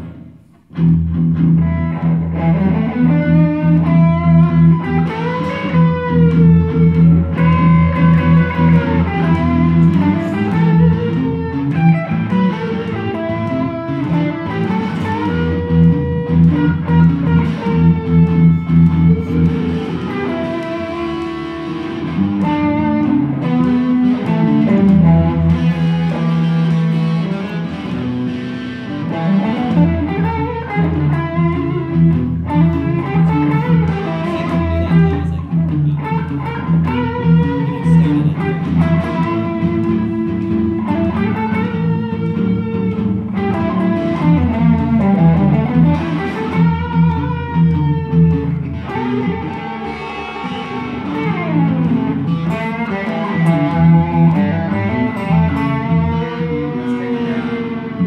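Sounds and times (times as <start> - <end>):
electric guitar lead line: 0.0 - 58.0
electric guitar rhythm part: 0.0 - 58.0.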